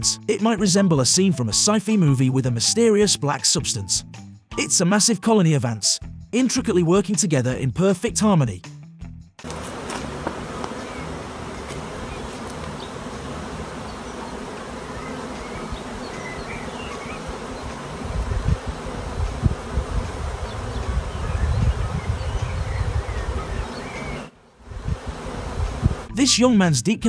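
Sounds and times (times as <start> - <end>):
bees buzzing: 9.4 - 26.2.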